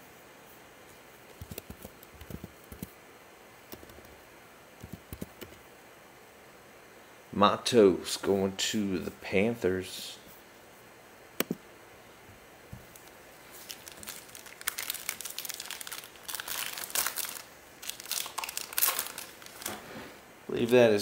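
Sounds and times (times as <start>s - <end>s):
foil wrapper crackling: 13.0s - 19.8s.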